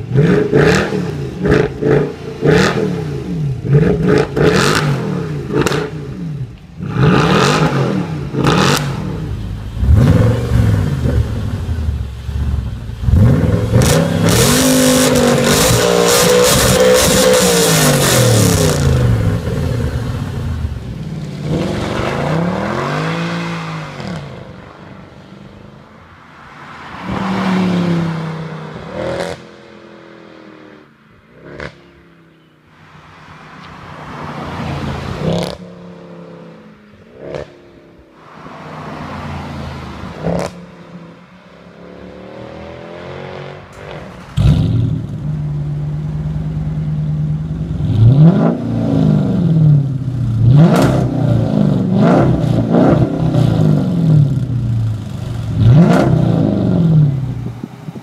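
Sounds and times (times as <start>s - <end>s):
car engine revving: 0.0s - 25.8s, 26.6s - 32.0s, 33.3s - 58.0s
exhaust cracks: 43.6s - 46.6s.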